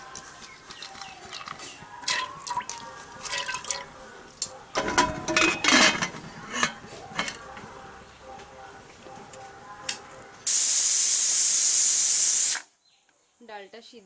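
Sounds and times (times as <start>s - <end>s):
metal lid clattering and scraping: 4.7s - 7.5s.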